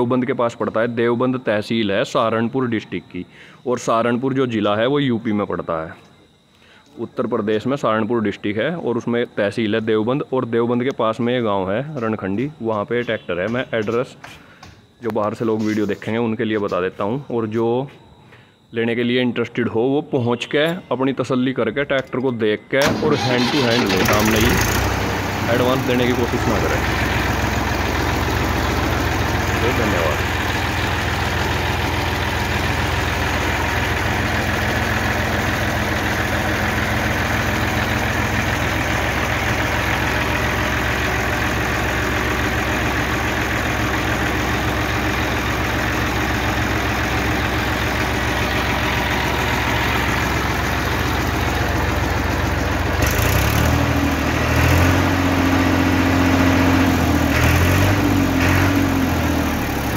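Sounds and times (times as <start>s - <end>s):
tractor diesel engine idling: 22.8s - 59.9s.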